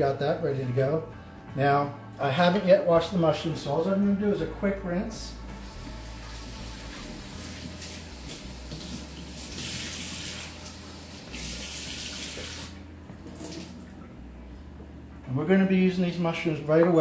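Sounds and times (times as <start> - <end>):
kitchen tap running: 5.6 - 13.9.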